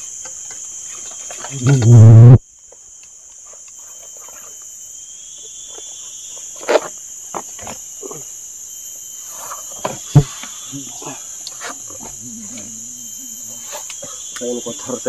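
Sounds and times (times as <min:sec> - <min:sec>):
high-pitched insect drone: 0:00.0 - 0:15.0
faint chirping calls: 0:08.0 - 0:15.0.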